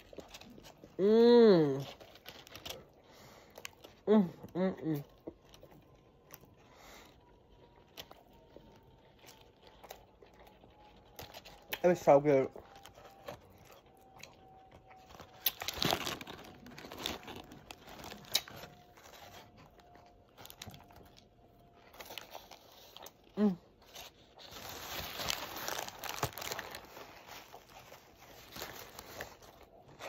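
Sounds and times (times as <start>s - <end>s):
chewing and lip-smacking: 0.0s - 1.0s, 1.8s - 24.4s
paper wrapper crinkling: 0.0s - 4.0s, 5.3s - 30.0s.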